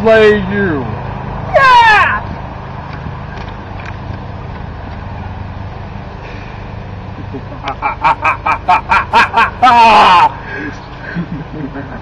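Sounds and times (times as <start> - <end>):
low outdoor rumble: 0.0 - 12.0
person laughing: 7.2 - 12.0.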